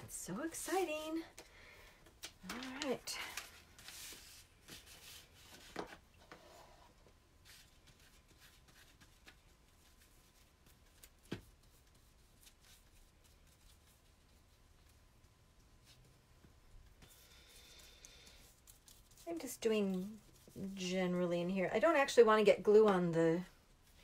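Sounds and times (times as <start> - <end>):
paper rustling: 2.0 - 6.6.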